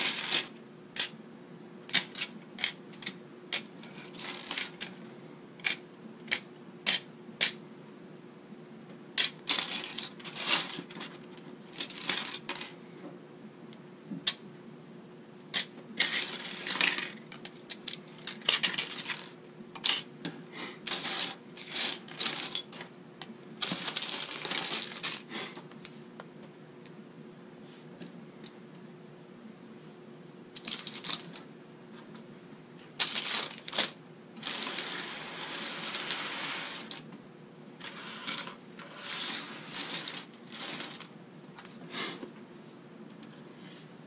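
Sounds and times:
plastic bricks clattering on wood: 9.2s - 12.7s, 15.6s - 20.1s, 23.6s - 25.3s, 30.6s - 31.4s, 33.0s - 37.0s.

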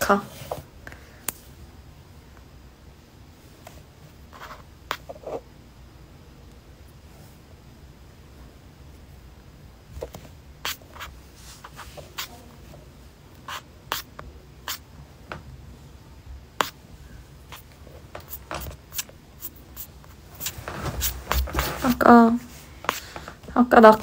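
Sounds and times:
rustling: 17.5s - 24.0s.

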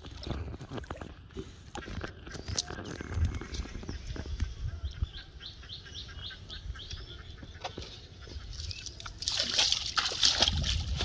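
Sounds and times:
water splashing and sloshing: 0.0s - 4.4s, 7.4s - 11.0s.

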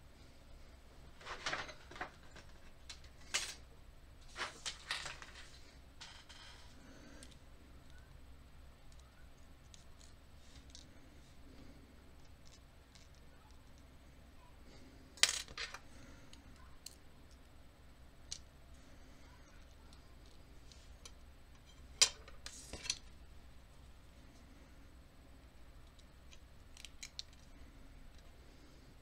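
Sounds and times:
small metal parts clicking: 12.2s - 13.9s, 25.8s - 28.3s.

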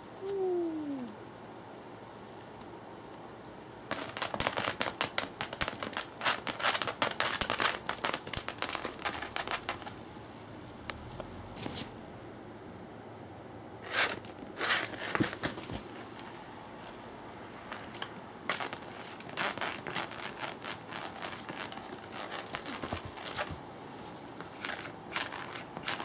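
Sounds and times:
cats scuffling on a mat: 11.0s - 12.0s, 14.2s - 26.0s.

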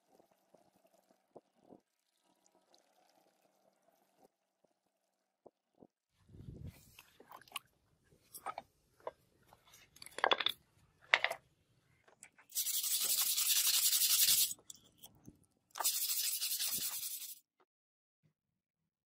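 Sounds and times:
brush scrubbing metal blade: 12.5s - 14.6s, 15.8s - 17.4s.

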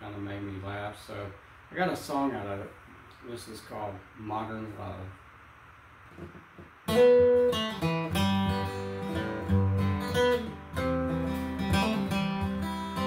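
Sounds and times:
acoustic guitar picking and strumming: 6.2s - 13.0s.

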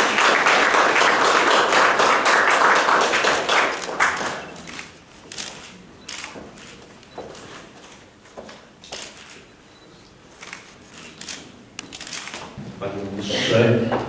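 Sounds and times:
audience applause: 0.0s - 4.8s.

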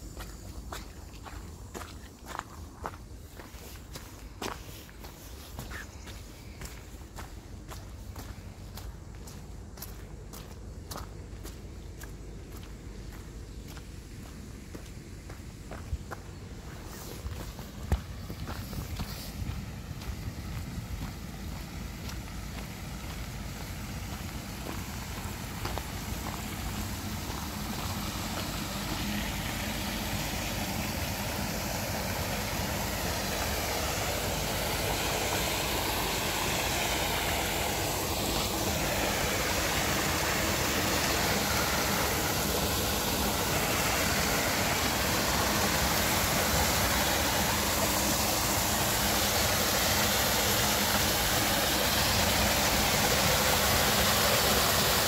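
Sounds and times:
wastewater rushing and splashing: 14.3s - 55.0s.

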